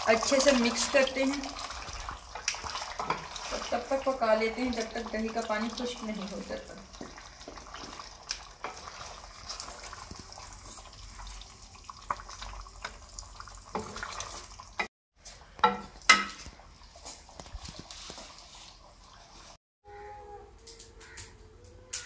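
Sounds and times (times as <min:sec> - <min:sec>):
sauce sizzling and bubbling: 0:00.0 - 0:19.6
wooden spoon scraping a pan: 0:02.3 - 0:04.2, 0:06.8 - 0:11.4, 0:15.2 - 0:19.6.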